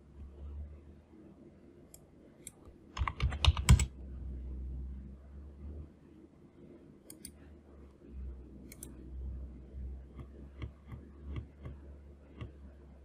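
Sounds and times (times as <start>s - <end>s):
low hum: 0.0s - 13.0s
mouse and keyboard clicks: 1.9s - 3.9s, 8.7s - 9.0s, 10.1s - 12.6s.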